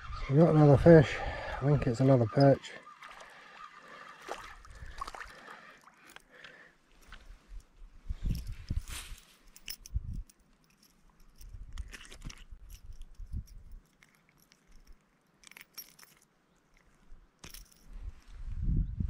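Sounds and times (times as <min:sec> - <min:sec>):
clicks crackles and rustles of handling: 0:08.4 - 0:17.8.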